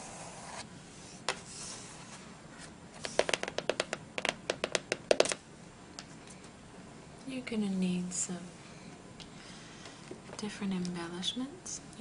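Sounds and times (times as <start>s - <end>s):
fingernail tapping on cover: 3.2s - 5.4s.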